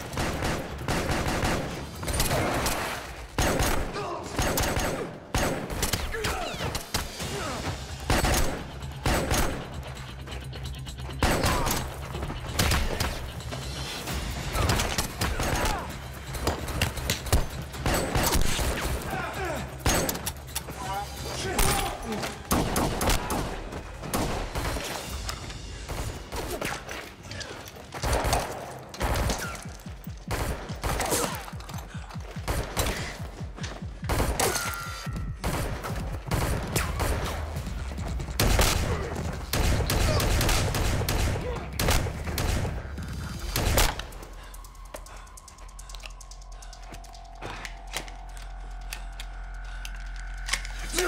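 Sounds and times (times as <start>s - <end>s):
gunfire volleys: 0.0s - 7.2s, 8.0s - 9.8s, 38.4s - 44.1s
gunshots in quick succession: 0.0s - 7.4s, 8.0s - 9.9s, 11.2s - 11.9s, 22.5s - 25.2s, 28.0s - 31.5s, 32.4s - 33.2s, 34.0s - 34.8s, 35.4s - 37.7s, 38.4s - 44.1s
low film score: 0.0s - 51.0s.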